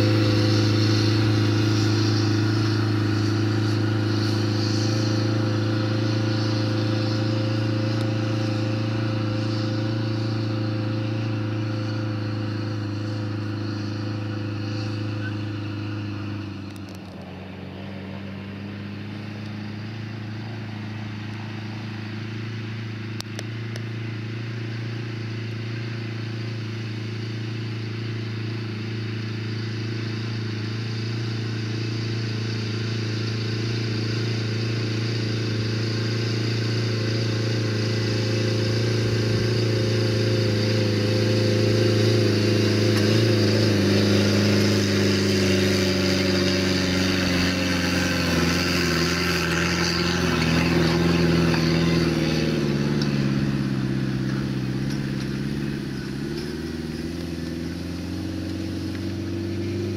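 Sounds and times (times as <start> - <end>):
crop sprayer engine passing: 0.0 - 22.0, 33.6 - 59.9.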